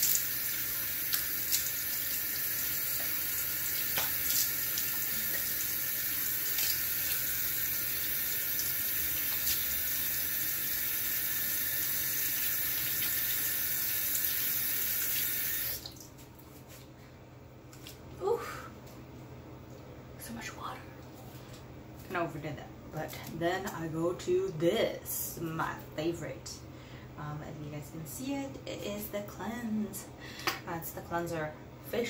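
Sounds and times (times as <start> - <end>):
sink tap running: 0.0 - 16.0
water splashing on face: 2.9 - 7.4.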